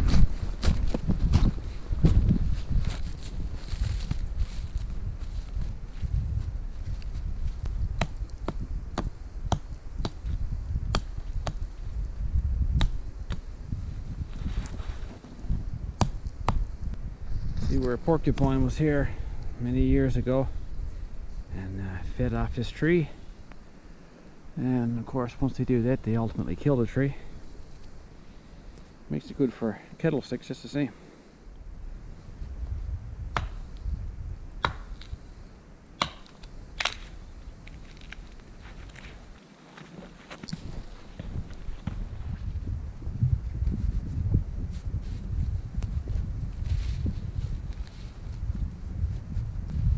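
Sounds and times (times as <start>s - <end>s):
wind rumble on microphone: 0.0s - 23.6s, 31.4s - 35.6s, 40.0s - 49.9s
dry twigs snapping: 36.0s - 39.2s.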